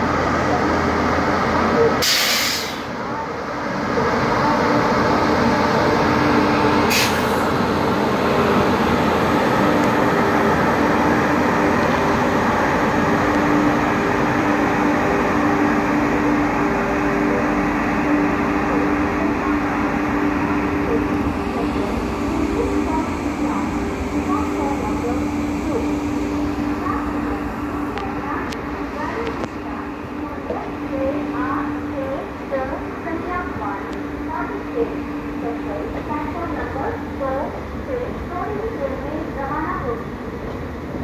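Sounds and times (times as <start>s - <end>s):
train rumbling: 0.0s - 41.0s
short hisses: 2.0s - 2.9s.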